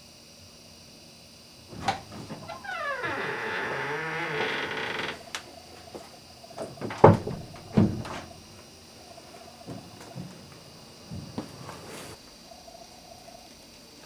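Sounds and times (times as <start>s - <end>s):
knocks and thumps: 1.7s - 2.8s, 5.9s - 8.6s, 9.7s - 11.6s
wooden door creaking: 1.7s - 8.6s.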